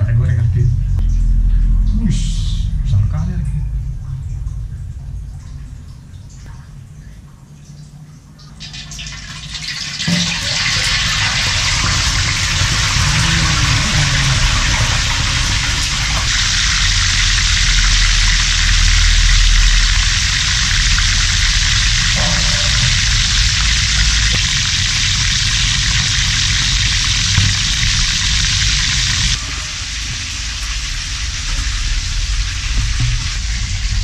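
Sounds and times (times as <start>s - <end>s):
fish frying in hot oil: 7.7s - 34.0s.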